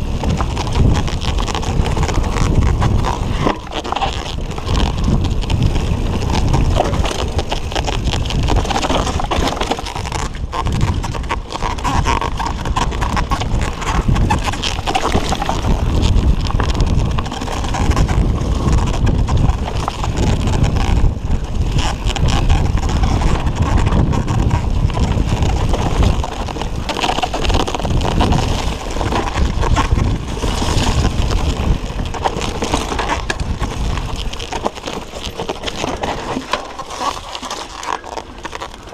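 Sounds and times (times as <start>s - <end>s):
bike knocking and rattling: 0.0s - 38.9s
tyres rolling on dirt: 0.0s - 38.9s
wind on microphone: 0.0s - 38.9s.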